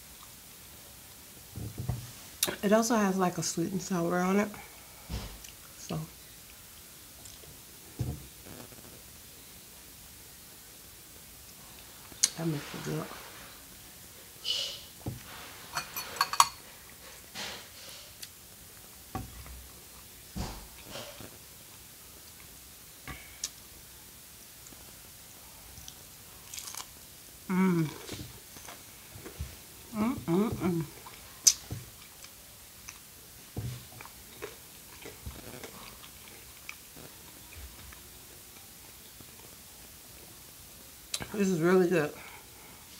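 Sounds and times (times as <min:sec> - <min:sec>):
soft hisses: 0:00.3 - 0:42.9
chewing crunches: 0:25.8 - 0:27.0.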